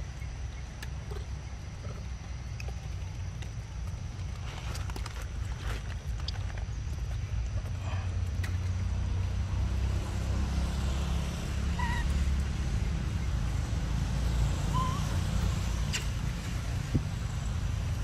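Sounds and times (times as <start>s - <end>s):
wind buffeting microphone: 14.8s - 18.0s.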